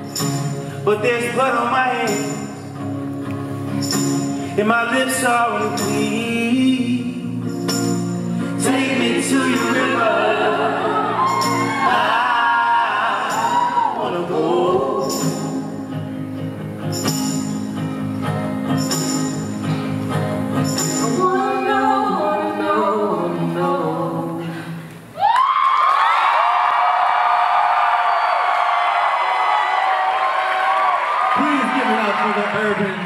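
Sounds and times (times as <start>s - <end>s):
person singing slow song: 4.2s - 16.1s, 20.8s - 25.1s
audience cheering and whooping: 9.8s - 14.3s, 25.2s - 33.0s.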